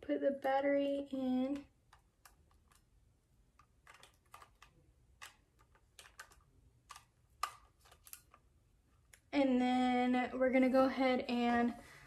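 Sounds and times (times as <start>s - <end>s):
small plastic clicks and taps: 1.4s - 2.9s, 3.5s - 8.4s.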